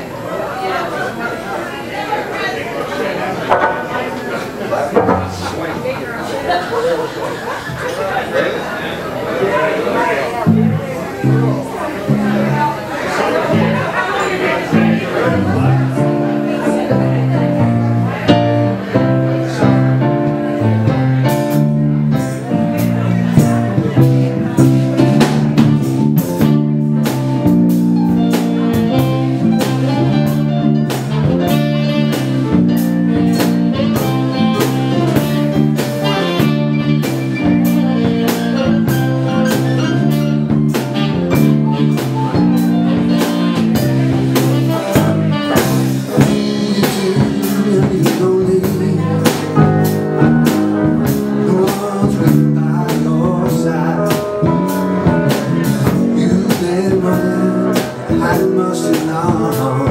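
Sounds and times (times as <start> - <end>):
live band playing blues: 3.0 - 8.0, 9.9 - 59.9
guitar: 3.2 - 6.5, 9.8 - 59.9
drum kit beat: 4.9 - 5.9, 14.7 - 59.9.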